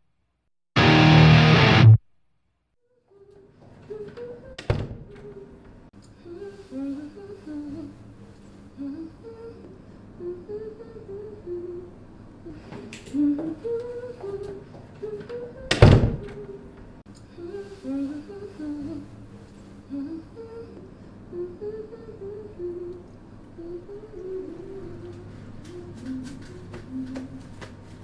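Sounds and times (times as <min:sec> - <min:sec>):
person humming: 0:19.9 - 0:27.5.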